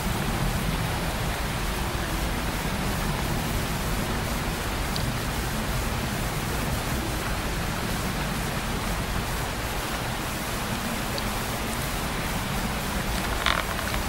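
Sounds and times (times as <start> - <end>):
steady rushing noise: 0.0 - 14.0.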